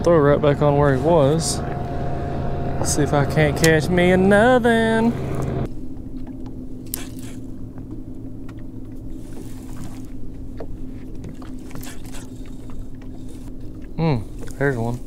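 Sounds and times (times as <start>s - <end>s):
low rumble: 0.0s - 11.7s
electric trolling motor humming: 0.0s - 15.0s.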